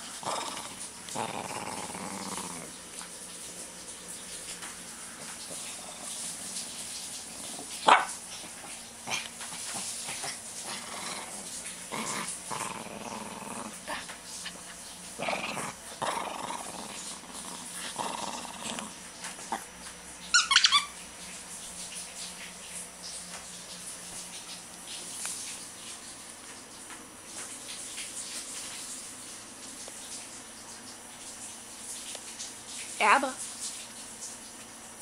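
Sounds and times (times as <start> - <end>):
dog growling in play: 0.0 - 3.2, 5.0 - 6.5, 7.4 - 19.8.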